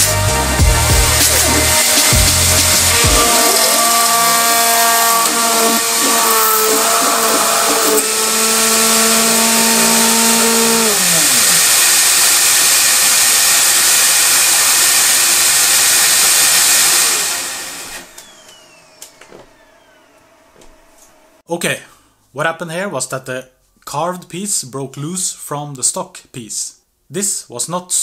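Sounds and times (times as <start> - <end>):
stepper motors whining: 0.0 - 21.4
router spindle milling plastic: 1.0 - 21.2.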